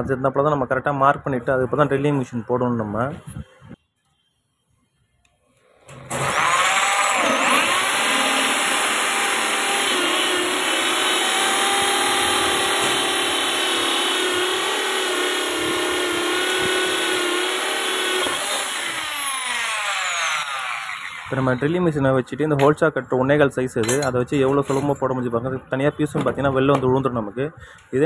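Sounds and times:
electric drill cutting wood: 0:05.9 - 0:21.7.

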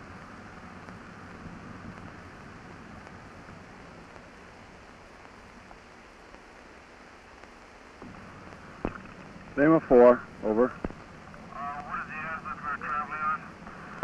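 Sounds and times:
faint radio static hiss: 0:00.0 - 0:14.0.

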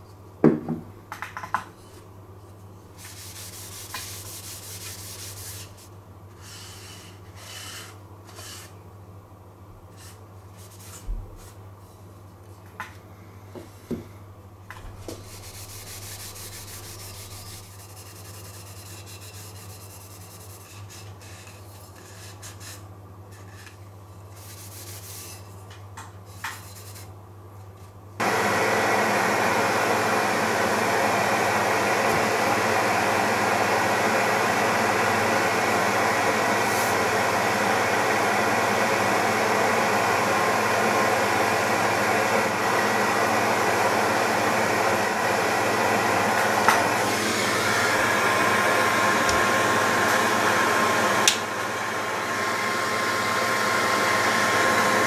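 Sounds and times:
cloth scrubbing wood: 0:03.0 - 0:05.8, 0:15.1 - 0:20.7.

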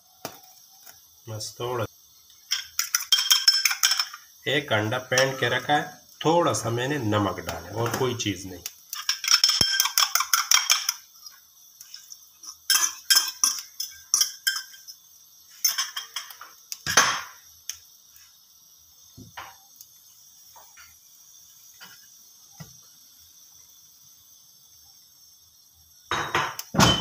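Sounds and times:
fork clinking against glass bowl: 0:12.4 - 0:15.0.

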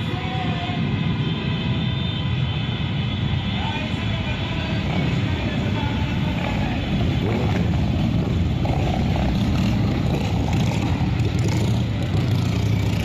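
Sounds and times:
motorcycle engine running: 0:06.3 - 0:13.0.

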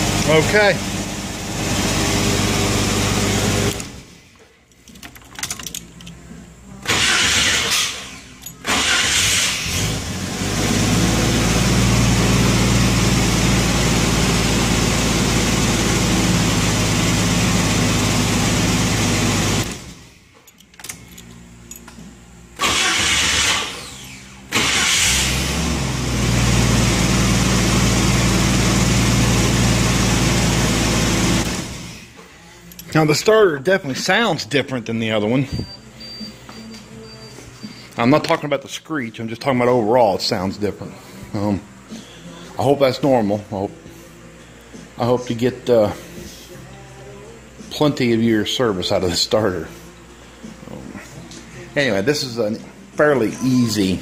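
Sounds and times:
starter motor cranking: 0:02.5 - 0:04.1, 0:06.8 - 0:10.3, 0:22.6 - 0:25.9
car engine idling: 0:22.6 - 0:32.1.

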